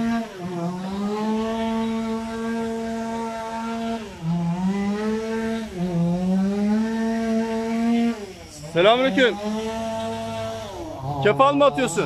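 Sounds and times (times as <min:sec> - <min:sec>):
chainsaw running at high revs: 0:00.0 - 0:12.0.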